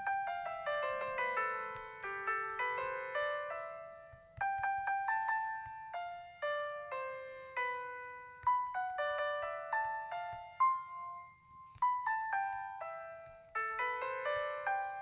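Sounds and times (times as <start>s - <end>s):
slow piano melody: 0.0s - 15.0s.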